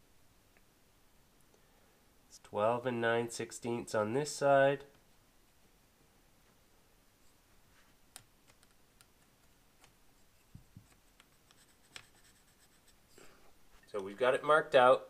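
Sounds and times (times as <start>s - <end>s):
pencil ticking and tapping on tape: 8.1s - 13.0s.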